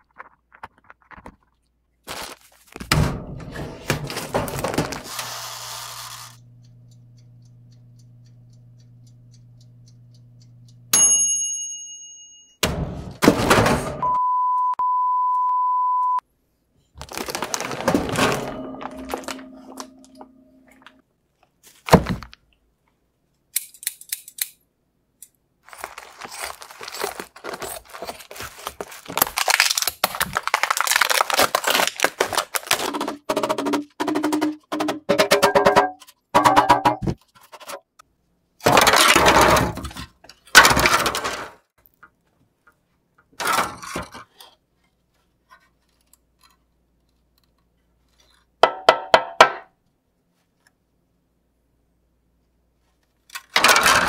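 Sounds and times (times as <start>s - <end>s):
bell-like ding: 10.9s - 12.7s, 18.4s - 20.8s
steady beep: 14.0s - 16.2s
rubber mallet knocking: 48.6s - 49.6s.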